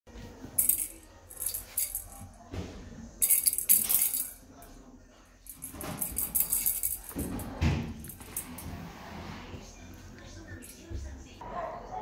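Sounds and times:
cat toy rattle jingling: 0.6 - 2.2, 3.2 - 4.4, 5.5 - 7.4.

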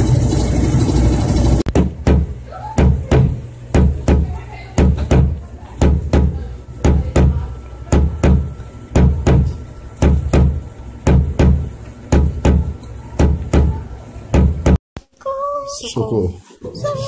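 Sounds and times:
heartbeat double thumps: 1.7 - 14.8.

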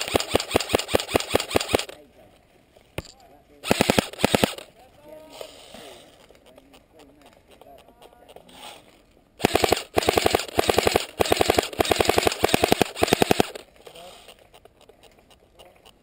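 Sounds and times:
airsoft rifle firing bursts: 0.0 - 2.0, 3.6 - 4.7, 9.4 - 14.3.

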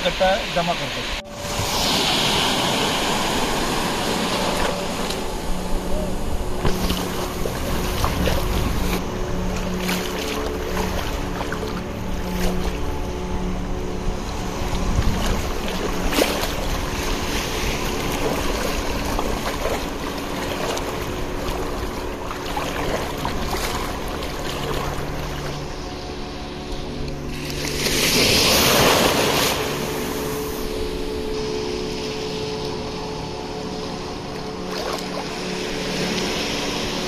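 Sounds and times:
sea surf at shoreline: 0.0 - 37.0
low engine hum: 1.0 - 37.0
wind buffeting microphone: 1.1 - 25.8.

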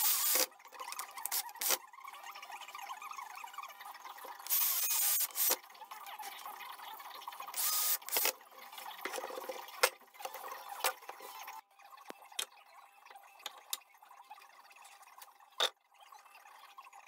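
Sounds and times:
cordless drill driving screws: 0.0 - 0.5, 4.5 - 5.6, 7.6 - 8.3.

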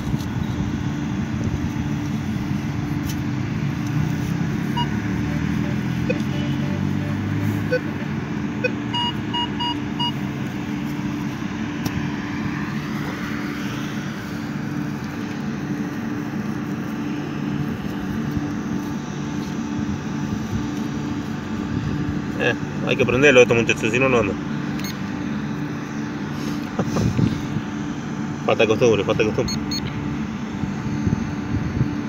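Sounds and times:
steady low hum: 0.0 - 32.0
metal detector beeping: 4.6 - 6.6, 7.6 - 10.2, 24.8 - 25.1, 29.4 - 29.9.

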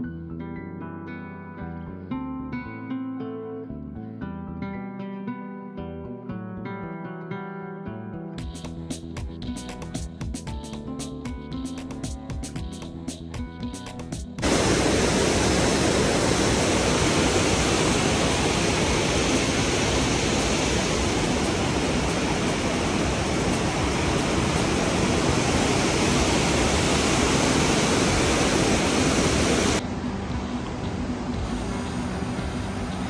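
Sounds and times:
water rushing: 14.4 - 33.0.

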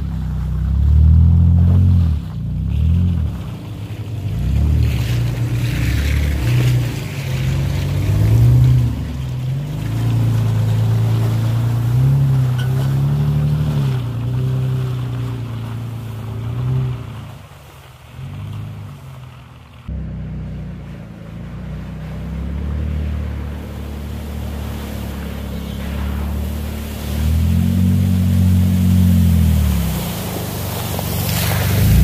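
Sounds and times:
pickup truck engine revving: 21.4 - 32.0.

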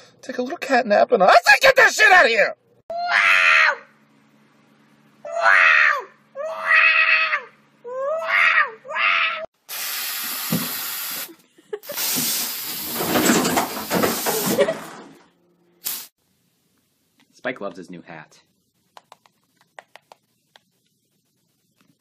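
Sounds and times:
cat yowling: 2.9 - 3.9, 5.3 - 9.5.

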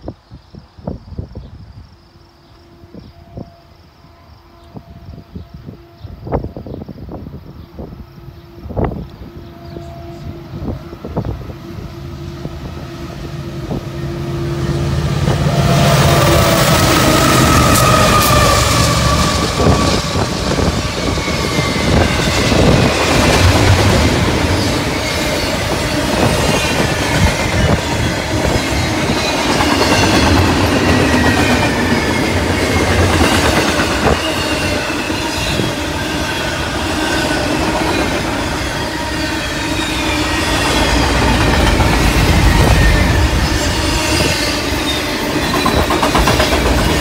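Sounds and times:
high wheel squeals: 13.7 - 47.0
train wheels clattering on rails: 15.2 - 47.0.

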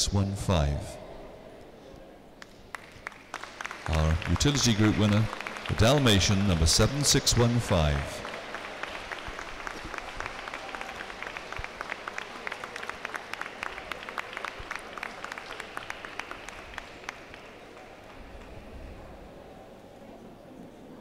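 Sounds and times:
audience applauding: 2.4 - 18.7.

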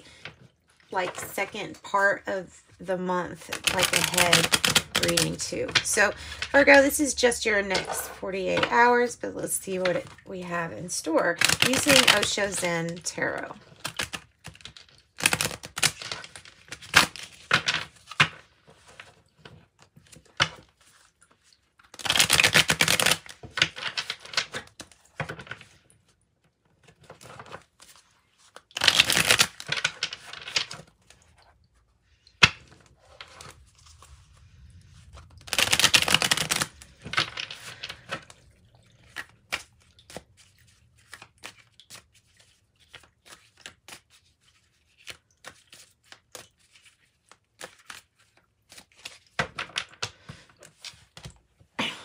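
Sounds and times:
cards being shuffled: 3.4 - 8.8, 11.4 - 12.7, 13.7 - 19.2, 20.0 - 25.8, 26.8 - 31.2, 32.4 - 51.3.

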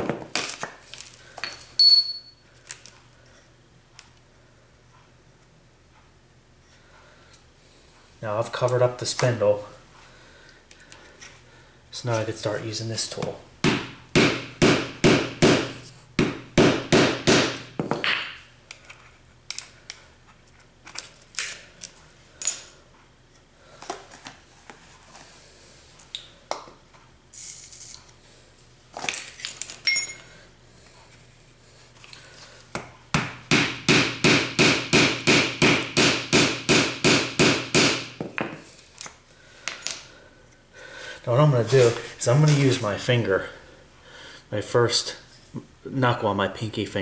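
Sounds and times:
mallet pounding on rammer: 13.6 - 18.2, 33.2 - 38.1.

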